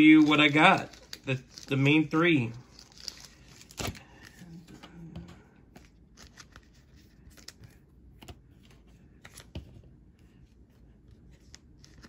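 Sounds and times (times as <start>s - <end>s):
plastic rustles: 0.0s - 4.7s.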